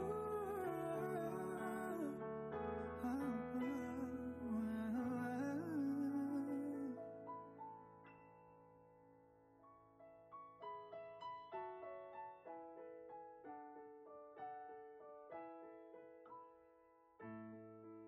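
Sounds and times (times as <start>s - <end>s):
solo piano music: 0.0s - 18.0s.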